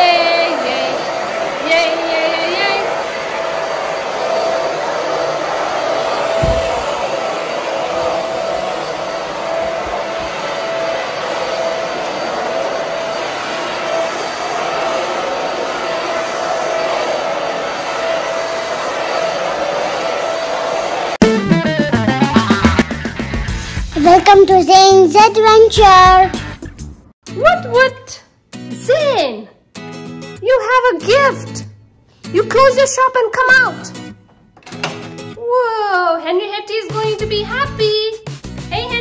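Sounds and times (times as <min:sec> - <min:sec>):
vacuum cleaner running: 0:00.0 - 0:23.1.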